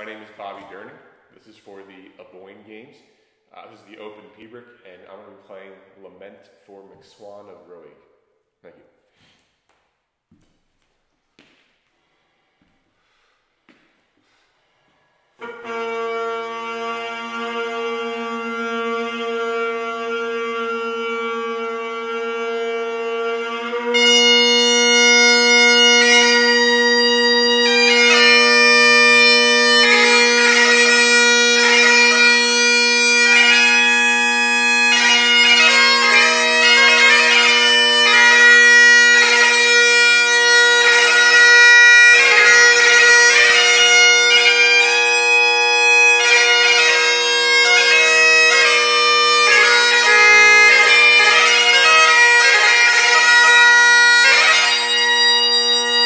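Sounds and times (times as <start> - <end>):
bagpipe drones: 0.0 - 0.8, 15.4 - 56.0
bagpipe chanter melody: 0.0 - 0.9, 15.3 - 56.0.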